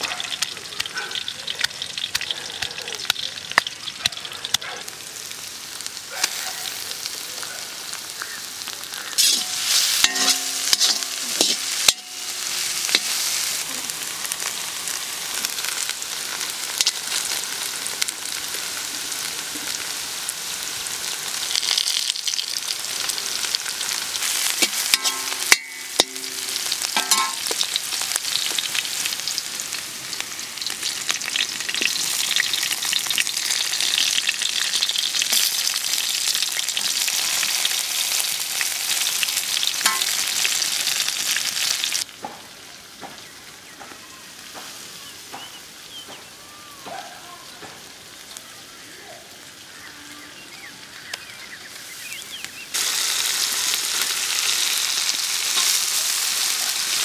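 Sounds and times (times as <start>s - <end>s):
food sizzling in hot oil: 0.0s - 46.7s, 47.4s - 57.0s
metal skimmer scraping a pan: 9.2s - 13.2s, 24.6s - 27.6s.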